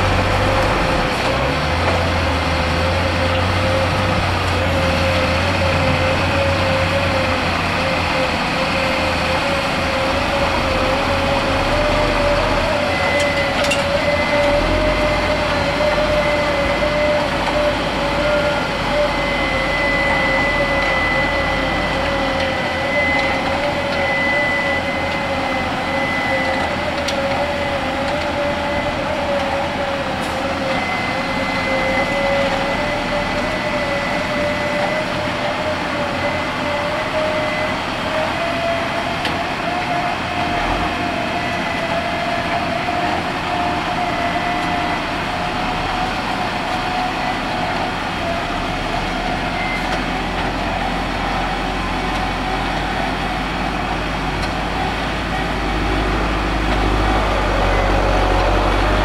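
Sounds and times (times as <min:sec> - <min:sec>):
tractor diesel engine running: 0:00.0 - 0:59.0
wavering whine: 0:00.0 - 0:59.0.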